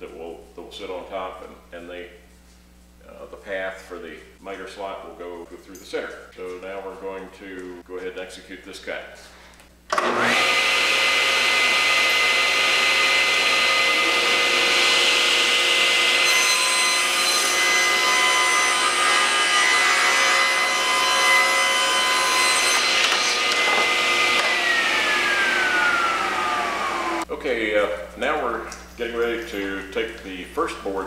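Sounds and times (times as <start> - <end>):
saw blade spinning down: 9.9 - 27.2
table saw whine: 9.9 - 27.3
saw blade cutting board: 10.0 - 27.2.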